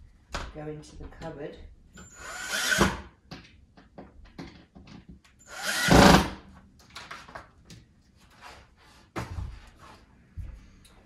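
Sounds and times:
power drill driving screw: 2.0 - 3.0, 5.4 - 6.4.

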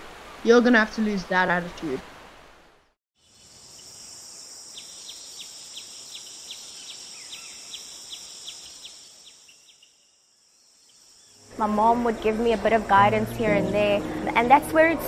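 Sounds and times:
high insect drone: 3.2 - 14.3.

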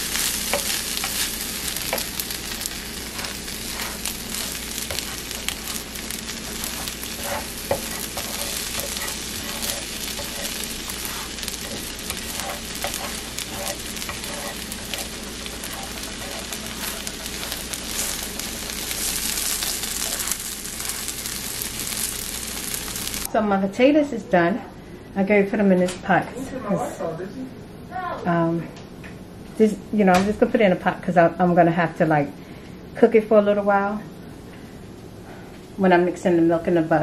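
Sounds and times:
patties sizzling in oil: 0.0 - 23.3
utensils scraping and tapping pan: 0.5 - 2.2, 3.1 - 5.8, 6.5 - 20.4.

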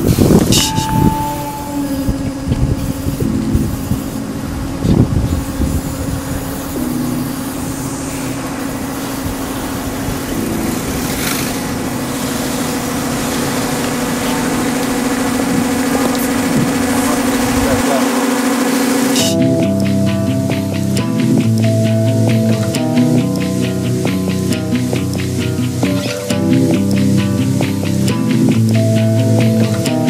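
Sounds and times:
low engine-like hum: 1.1 - 19.2.

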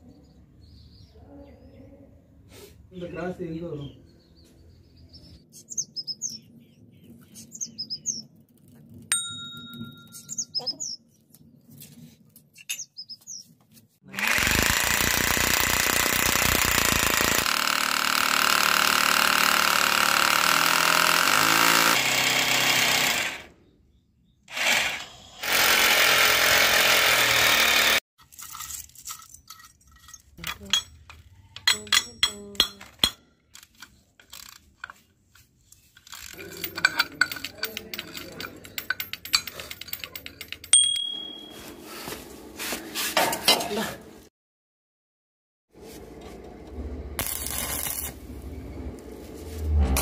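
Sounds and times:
birds chirping: 3.0 - 8.4, 10.0 - 11.6, 12.5 - 13.6
hammer drill boring into tile: 14.2 - 23.5, 24.5 - 28.0.

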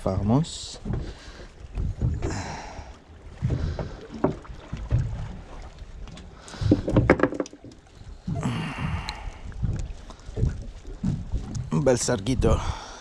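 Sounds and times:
wind rumbling on microphone: 0.0 - 13.0
knocks and slaps of fish: 6.6 - 9.2.

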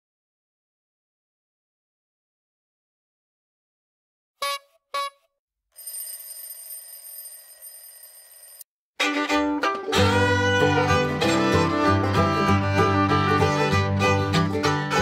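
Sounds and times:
country tune on fiddle and guitar: 9.0 - 15.0.

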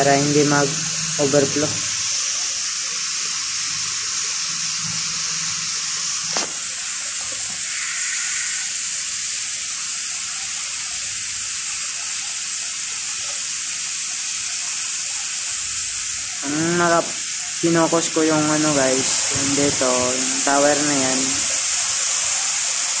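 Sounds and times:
sharp click: 6.3 - 6.6.

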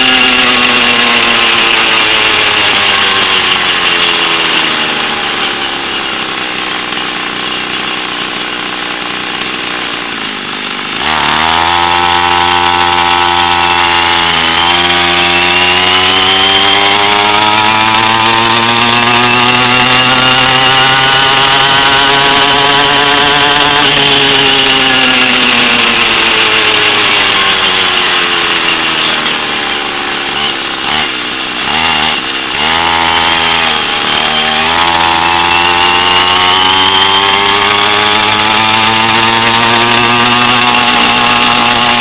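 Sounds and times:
small two-stroke engine: 0.0 - 42.0.

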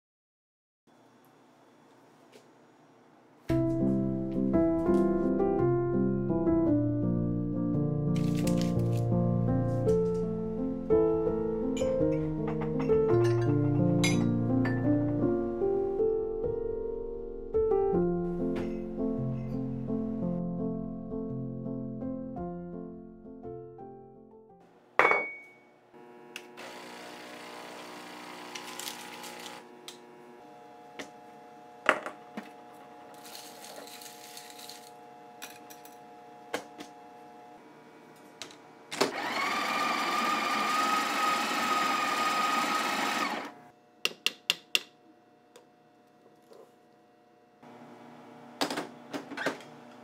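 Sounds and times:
coffee grinder running: 26.0 - 37.5, 38.2 - 43.7.

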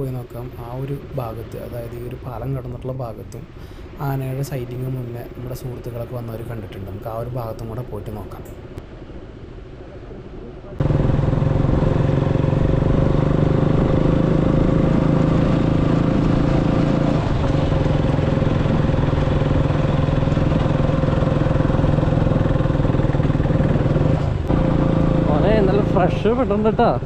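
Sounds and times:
motorcycle engine running: 10.8 - 26.4.

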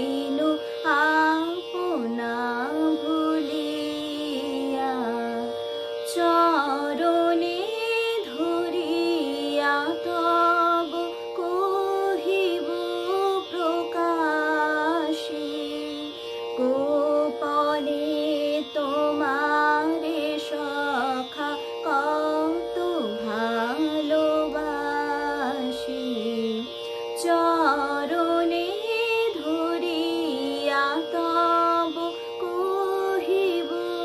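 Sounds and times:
woman singing: 0.0 - 34.0.

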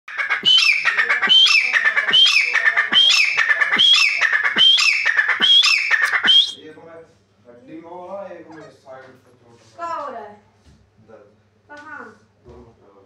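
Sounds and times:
bird calling sharp phrase: 0.1 - 6.6.

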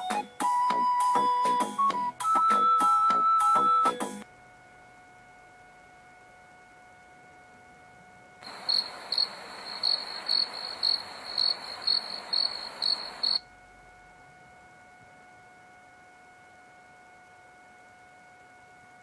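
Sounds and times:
thin high whine: 2.2 - 19.0
steady hiss: 5.6 - 18.9
cricket chirping: 8.4 - 13.5.

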